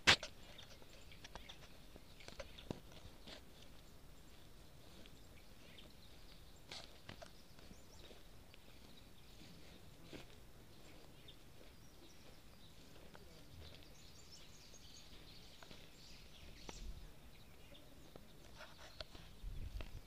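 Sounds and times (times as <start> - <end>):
footsteps and handling bumps: 0.0 - 4.4
birds chirping: 0.0 - 20.0.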